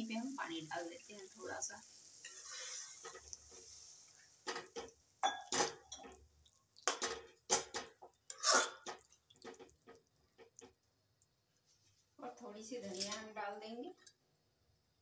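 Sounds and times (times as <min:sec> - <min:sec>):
metal spatula scraping a pan: 0:02.2 - 0:04.8.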